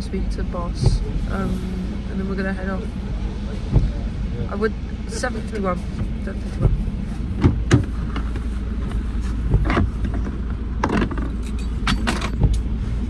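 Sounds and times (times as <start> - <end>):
truck engine droning: 0.0 - 13.0
metallic clinks and knocks: 10.8 - 12.7.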